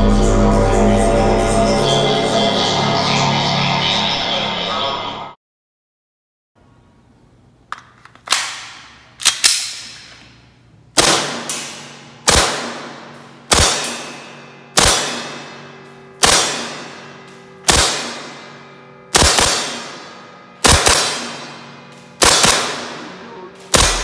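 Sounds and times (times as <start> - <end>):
airsoft pistol shots: 11.0 - 14.2, 14.8 - 15.6, 16.2 - 17.0, 17.6 - 18.5, 19.1 - 21.6, 22.2 - 24.0.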